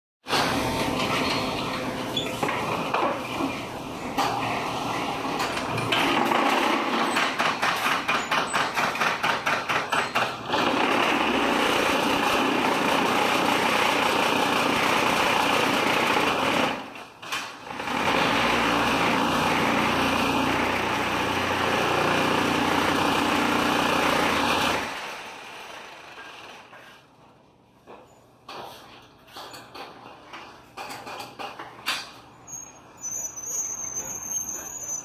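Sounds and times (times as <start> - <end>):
machine loud mechanical rattle: 4.2 - 20.4.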